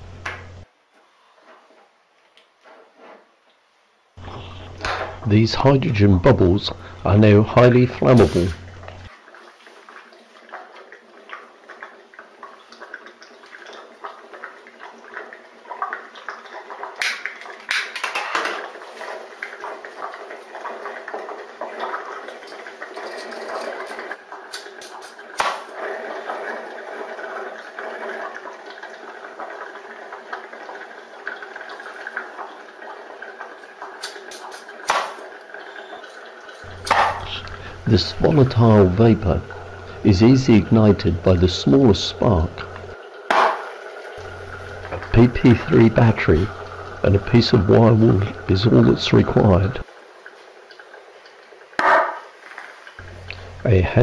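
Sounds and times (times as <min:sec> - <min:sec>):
bubbling into foam: 0:44.1 - 0:49.9.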